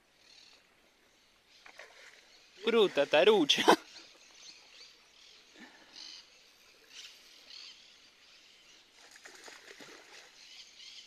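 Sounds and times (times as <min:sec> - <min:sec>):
faint bird chirps: 0:00.1 - 0:02.7, 0:03.8 - 0:11.0
fish splashing at water surface: 0:09.0 - 0:10.4.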